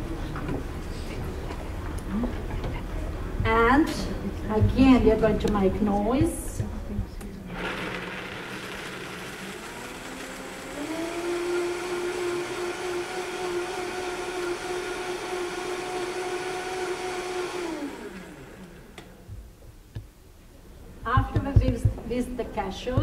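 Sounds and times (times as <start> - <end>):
blender motor running: 7.5 - 19.0.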